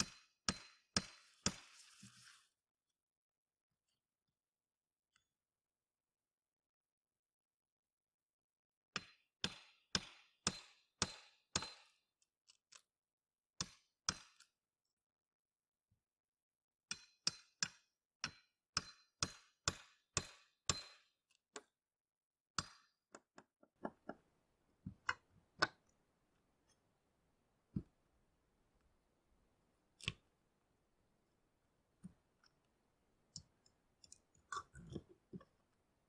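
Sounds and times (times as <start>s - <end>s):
steel hammer striking metal: 0.0s - 1.2s, 18.2s - 21.1s.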